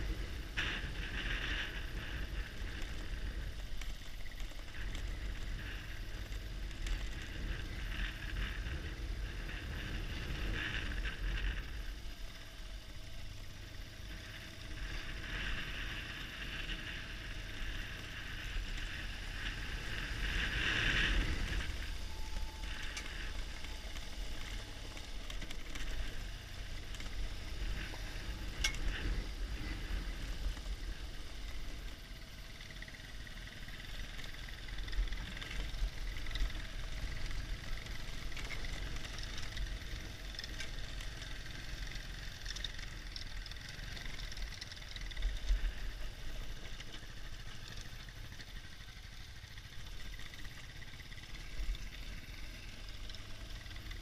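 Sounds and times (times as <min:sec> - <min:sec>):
wind noise: 0:00.0 - 0:03.9, 0:04.6 - 0:12.4, 0:13.6 - 0:31.8
motorcycle engine low rumble: 0:00.0 - 0:54.0.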